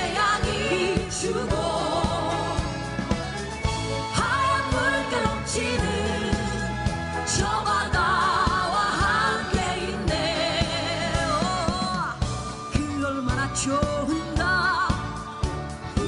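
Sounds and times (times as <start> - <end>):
song with singer over beat: 0.0 - 16.0.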